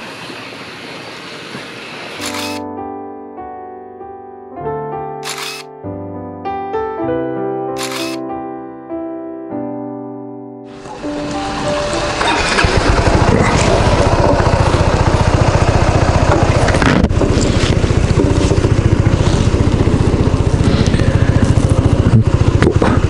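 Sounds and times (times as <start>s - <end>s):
scooter engine running: 2.2s - 2.6s, 10.7s - 23.0s.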